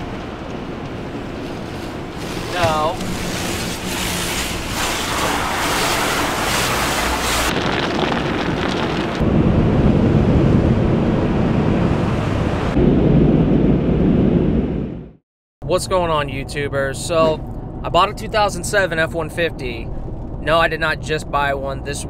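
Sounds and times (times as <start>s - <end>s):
car wash water jets rushing: 0.0s - 9.2s.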